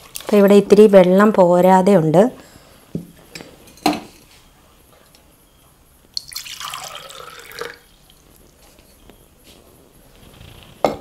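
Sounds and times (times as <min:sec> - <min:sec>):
water being poured: 0:06.2 - 0:07.8.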